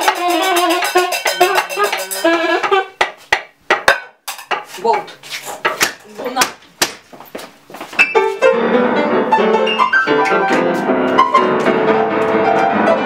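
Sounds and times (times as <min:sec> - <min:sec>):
rattling hand percussion: 0:00.0 - 0:03.1.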